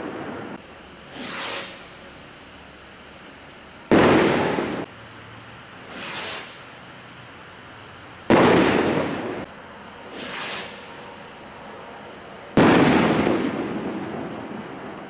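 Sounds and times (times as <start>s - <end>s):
rocket whooshing up: 0.0s - 1.9s, 5.7s - 6.7s, 8.3s - 14.6s
rocket bursting with a bang: 1.1s - 1.9s, 3.9s - 4.9s, 5.8s - 6.6s, 8.3s - 10.9s, 12.6s - 14.6s.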